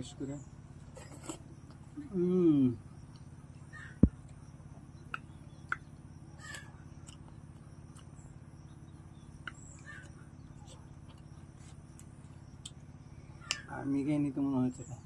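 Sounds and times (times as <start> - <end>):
steady low hum: 0.0 - 15.0
lip smacks and chewing clicks: 3.0 - 3.3, 4.1 - 8.2, 9.4 - 12.8.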